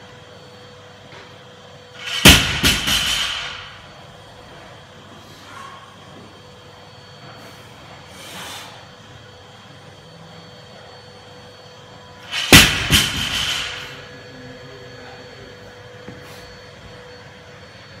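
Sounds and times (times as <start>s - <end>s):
barbell crashing on rubber mats: 2.0s - 3.7s, 12.3s - 14.0s.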